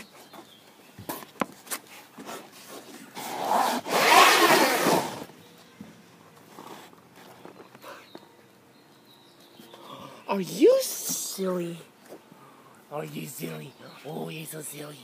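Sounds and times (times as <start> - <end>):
loud rubbing scrape: 3.2 - 5.3.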